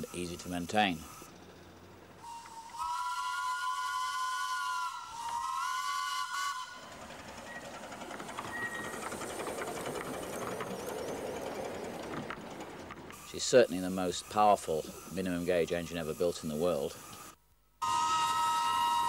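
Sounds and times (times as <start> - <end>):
steam hiss: 0.0 - 1.4, 2.2 - 11.7, 13.2 - 19.0
steam locomotive whistle: 2.2 - 7.8, 17.8 - 19.0
faint wheel clicks: 7.6 - 13.2.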